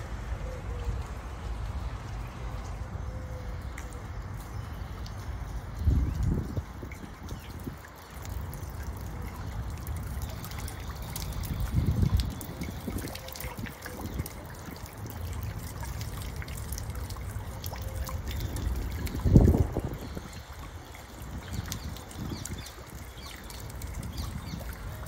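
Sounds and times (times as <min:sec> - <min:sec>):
fountain water trickling: 0:00.0 - 0:25.0
wind gust on microphone: 0:05.8 - 0:07.9, 0:18.5 - 0:23.1.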